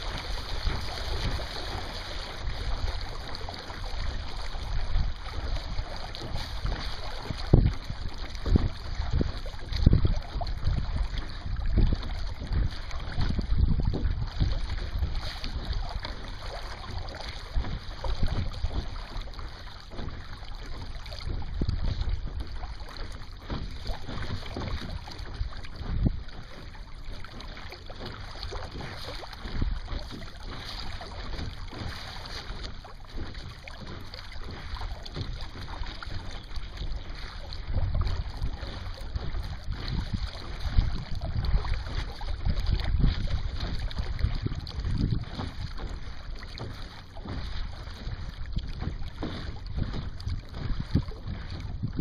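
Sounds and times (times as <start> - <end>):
water rushing along hull: 0.0 - 52.0
wind gusting over microphone: 4.6 - 19.2, 37.1 - 52.0.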